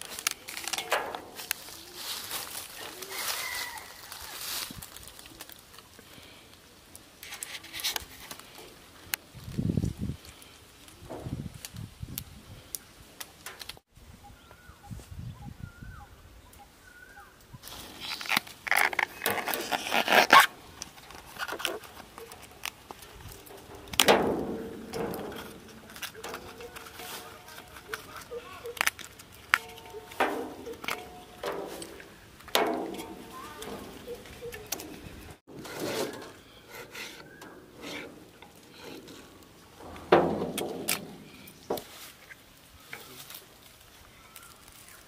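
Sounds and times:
plant bracts tearing by hand: 0.0s - 5.6s, 17.6s - 37.2s, 40.2s - 45.0s
florets being pulled: 17.6s - 45.0s.

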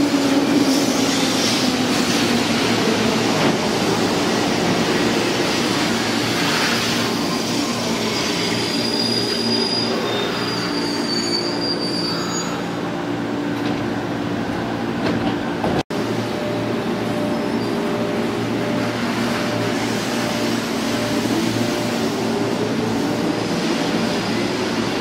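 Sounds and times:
train wheels rumbling on rails: 0.0s - 10.6s, 13.4s - 25.0s
high-pitched wheel squeal: 8.1s - 12.7s
standing train humming: 12.8s - 25.0s.

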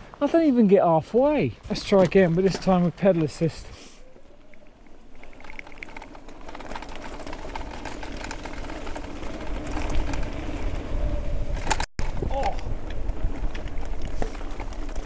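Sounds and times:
bike tyres rolling on gravel: 0.0s - 15.0s
wind rumbling on microphone: 4.0s - 15.0s.

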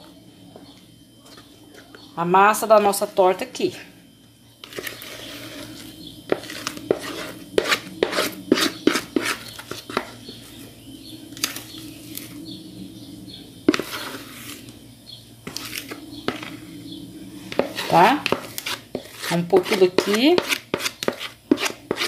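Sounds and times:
spatula scraping a mixing bowl: 4.6s - 10.6s, 13.6s - 14.7s, 15.4s - 16.8s, 17.4s - 22.0s.

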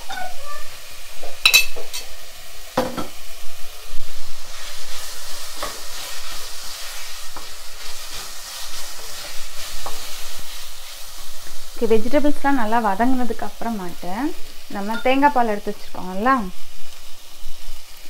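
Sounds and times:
vegetables sizzling in a pan: 0.0s - 18.0s
wooden spatula scraping a pan: 4.3s - 14.0s.

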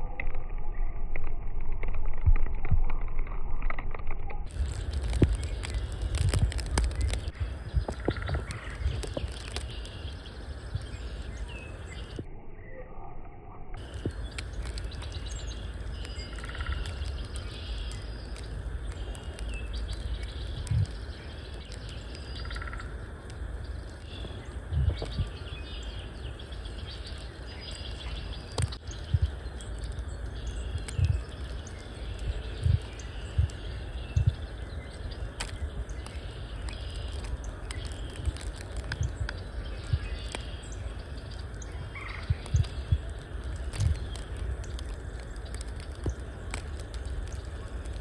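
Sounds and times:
steady low rumble: 0.0s - 48.0s
songbirds chirping and twittering: 4.3s - 48.0s
dull low thumps: 24.2s - 25.4s, 32.2s - 34.5s.

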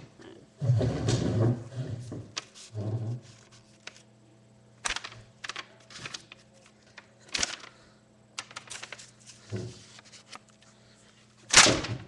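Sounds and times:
paper rustling and crinkling: 2.4s - 4.1s, 4.8s - 7.8s, 8.4s - 10.7s.

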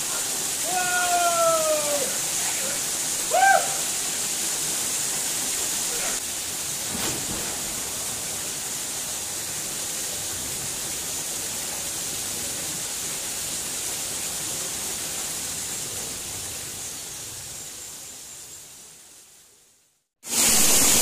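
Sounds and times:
waterfall rushing: 0.0s - 17.6s, 20.3s - 21.0s.

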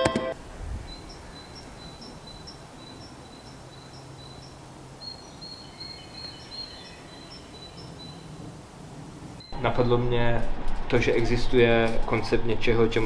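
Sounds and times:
faint outdoor background noise: 0.0s - 13.0s
birds chirping: 0.9s - 8.5s.

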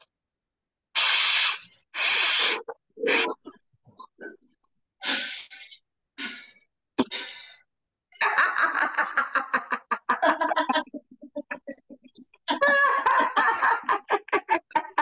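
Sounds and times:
woman blowing hard puffs of breath: 1.0s - 2.7s
woman laughing loudly: 8.2s - 15.0s.

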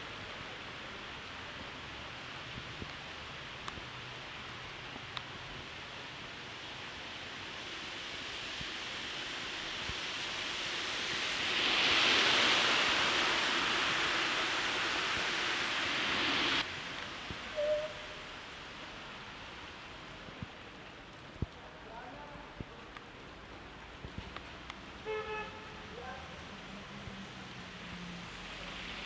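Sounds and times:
car tyres hissing on wet road: 0.0s - 29.0s.

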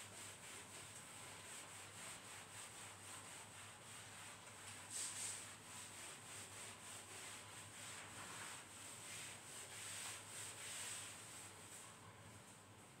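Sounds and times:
eraser rubbing whiteboard: 5.0s - 11.4s.

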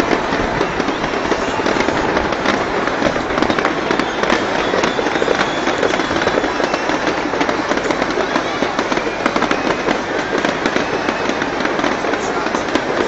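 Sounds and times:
fireworks crackling and popping: 0.0s - 13.0s.

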